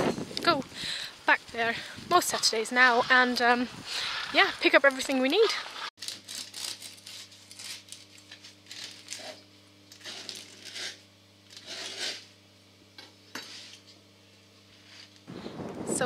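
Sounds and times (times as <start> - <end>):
faint steady hum: 0.0 - 16.0
bread knife sawing crust: 2.3 - 4.8, 10.0 - 12.3.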